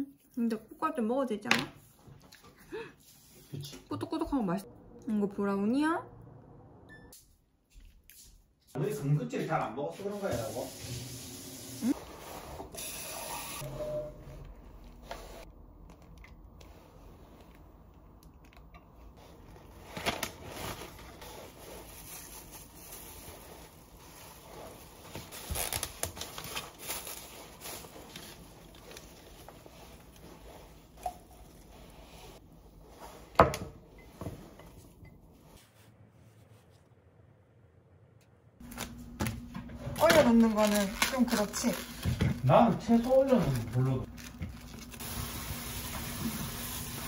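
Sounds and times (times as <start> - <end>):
wrapping crinkling and tearing: 19.3 - 31.6, 40.0 - 45.4.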